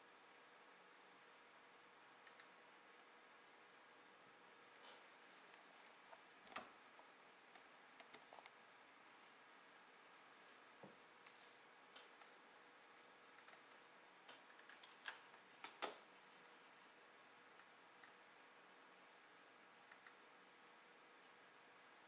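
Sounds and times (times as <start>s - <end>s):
computer mouse clicking: 2.2s - 2.6s, 5.5s - 6.7s, 7.5s - 8.6s, 13.3s - 13.7s, 17.5s - 18.2s, 19.9s - 20.3s.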